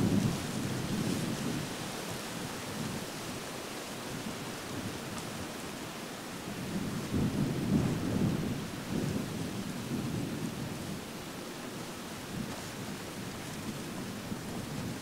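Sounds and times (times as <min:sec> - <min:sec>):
wind buffeting microphone: 0:00.0 - 0:03.4, 0:06.3 - 0:15.0.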